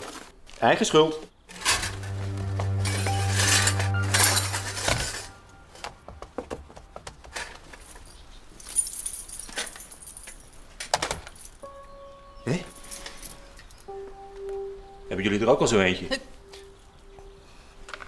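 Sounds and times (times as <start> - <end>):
low tone background music: 1.5 - 7.0, 11.6 - 18.0
keys jangling: 7.6 - 11.6.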